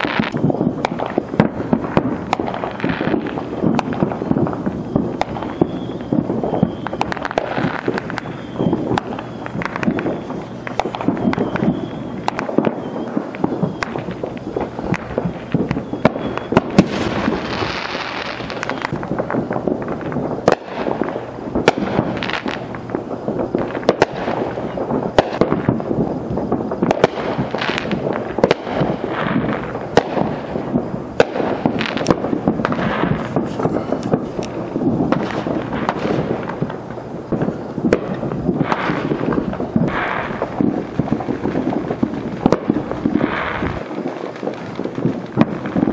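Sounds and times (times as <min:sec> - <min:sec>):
firecracker pops and bangs: 0:00.0 - 0:45.9
fireworks crackling: 0:00.0 - 0:45.9
fireworks hissing bursts: 0:00.0 - 0:45.9.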